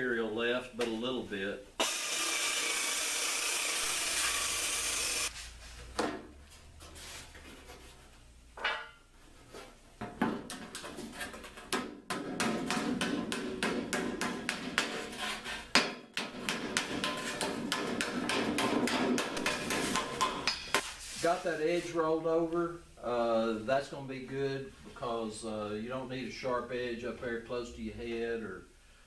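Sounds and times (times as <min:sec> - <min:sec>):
power tool trimming sheet metal: 0:01.8 - 0:05.3
mallet striking sheet metal: 0:11.8 - 0:15.1, 0:15.7 - 0:20.8.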